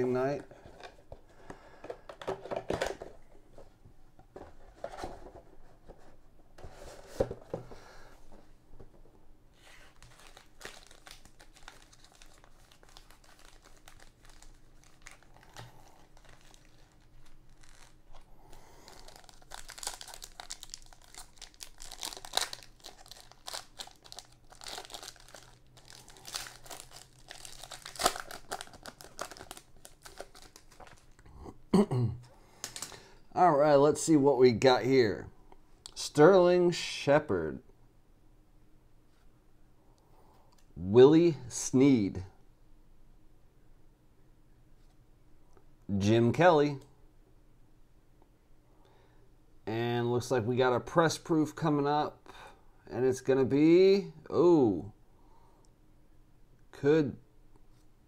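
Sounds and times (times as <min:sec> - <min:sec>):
foil packs crinkling: 0:09.8 - 0:31.3.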